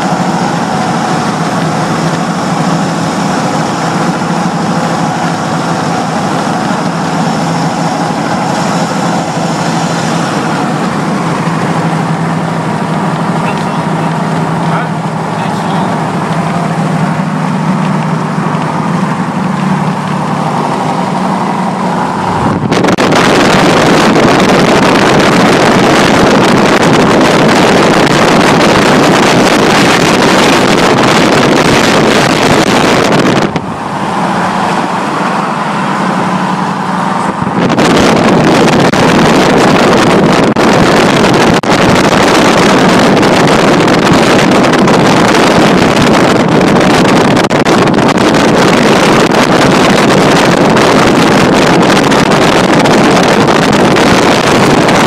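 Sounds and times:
car engine and road hum: 0:00.0 - 0:55.0
wind rushing over microphone: 0:00.0 - 0:55.0.

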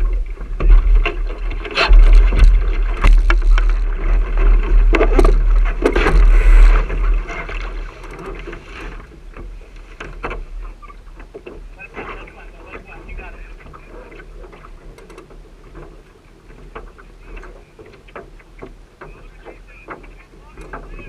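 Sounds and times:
wind buffeting microphone: 0:00.0 - 0:08.5
water rushing along hull: 0:00.0 - 0:21.0.

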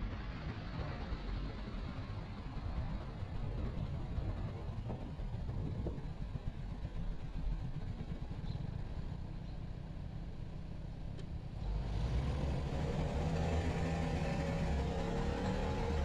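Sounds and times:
scooter engine: 0:12.2 - 0:16.0.

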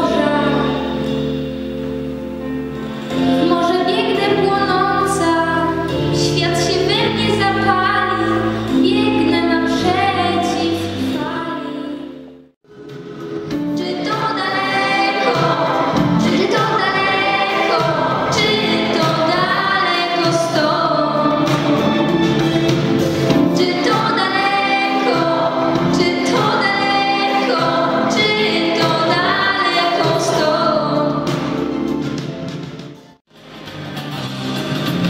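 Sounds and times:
musical accompaniment: 0:00.0 - 0:35.0
girl singing into microphone: 0:03.3 - 0:12.2, 0:13.8 - 0:21.3, 0:23.6 - 0:31.2.

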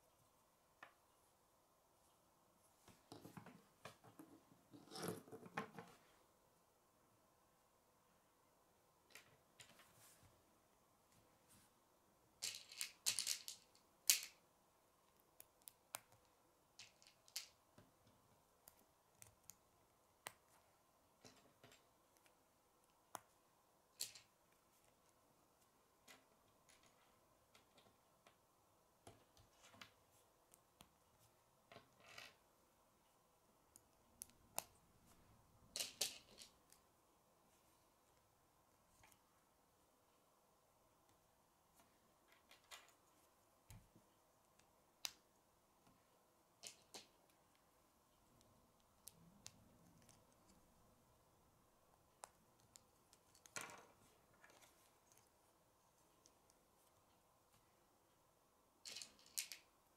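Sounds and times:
plastic pieces clicking: 0:58.9 - 0:59.6.

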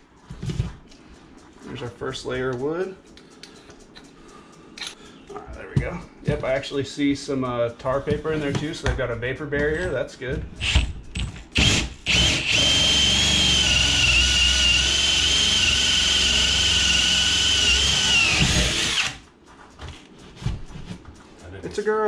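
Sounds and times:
drill whining through wood: 0:11.6 - 0:19.2.

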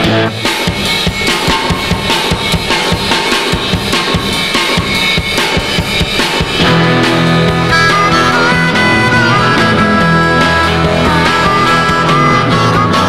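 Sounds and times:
bass and band sustained notes: 0:00.0 - 0:00.8, 0:06.6 - 0:13.0
rock drum break: 0:00.0 - 0:13.0.

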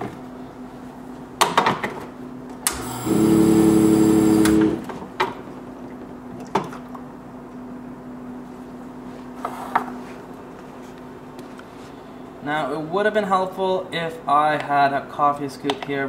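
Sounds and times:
espresso machine pump humming: 0:02.7 - 0:05.0.

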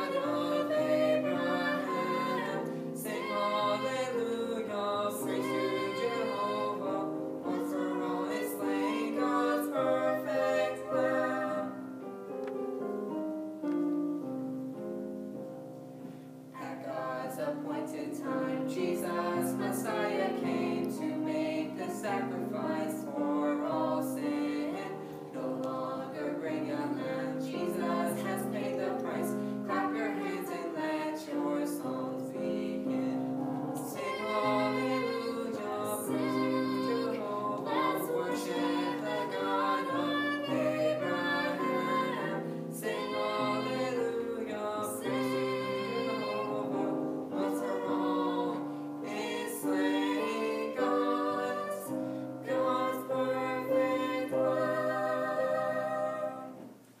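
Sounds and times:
woman and man singing duet: 0:00.0 - 0:11.8, 0:33.9 - 0:56.7.

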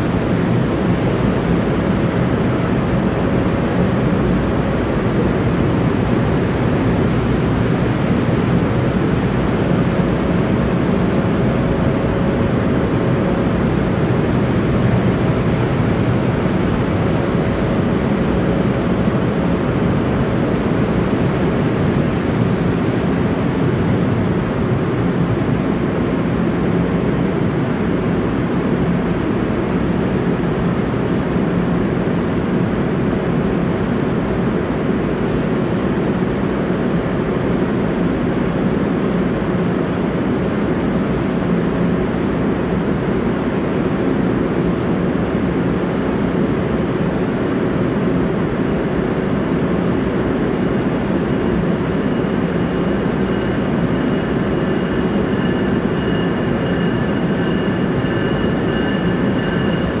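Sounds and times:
high wheel squeal: 0:00.0 - 0:01.6
train rumbling pulling away: 0:00.0 - 1:00.0.

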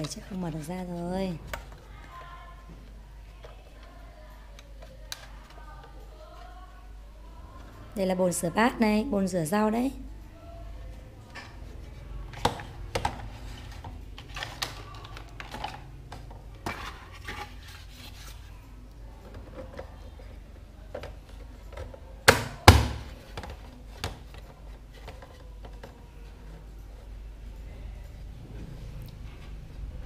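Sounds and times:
loud plastic knocks: 0:22.2 - 0:24.2.

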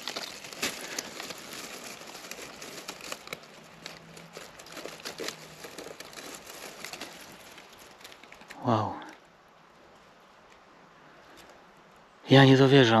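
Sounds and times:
leaf litter rustling and crackling: 0:00.0 - 0:09.2.

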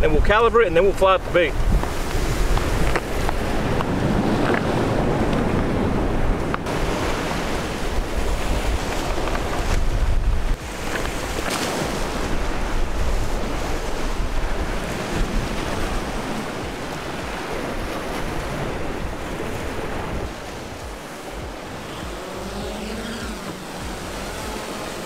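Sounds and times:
surf washing: 0:00.0 - 0:25.0
wind buffeting microphone: 0:00.0 - 0:25.0
drone motors whining: 0:21.4 - 0:25.0.

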